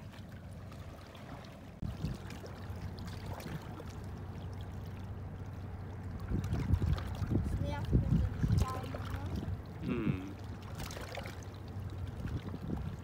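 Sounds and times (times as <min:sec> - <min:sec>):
water lapping against stones: 0:00.0 - 0:13.0
low rumble: 0:01.8 - 0:10.7.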